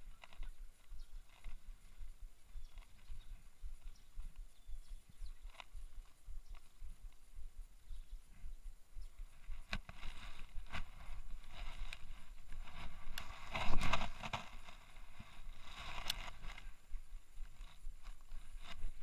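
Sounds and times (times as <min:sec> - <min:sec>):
fishing reel handling rustle: 0:09.6 - 0:19.0.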